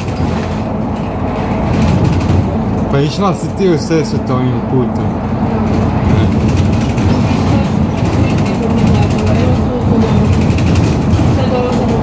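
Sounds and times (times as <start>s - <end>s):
bus engine and road rumble: 0.0s - 12.0s.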